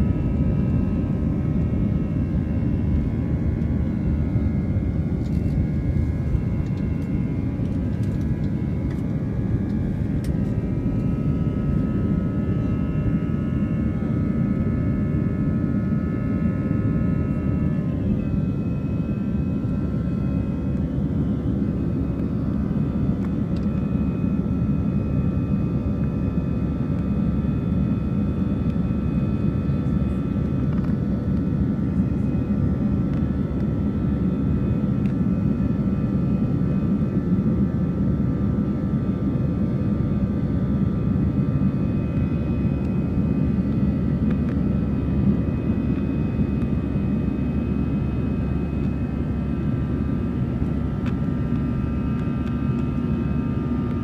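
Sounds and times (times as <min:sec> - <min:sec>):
faint steady whining tones: 0:00.0 - 0:54.0
jet engine cabin drone: 0:00.0 - 0:54.0.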